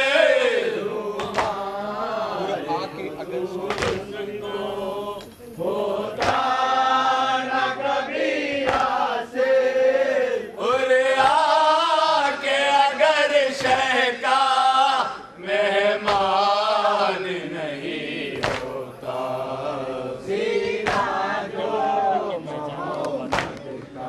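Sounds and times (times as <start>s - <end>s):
men chanting in unison: 0.0s - 24.0s
chest slaps: 1.2s - 1.6s, 3.7s - 4.0s, 16.0s - 16.3s, 18.4s - 18.7s, 20.8s - 21.1s, 23.3s - 23.6s.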